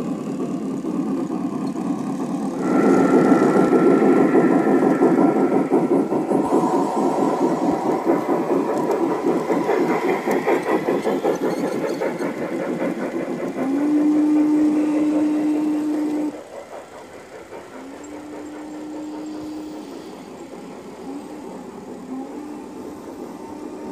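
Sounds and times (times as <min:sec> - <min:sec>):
model train wheels clattering: 0:00.0 - 0:23.9
steady low tone: 0:02.6 - 0:11.1.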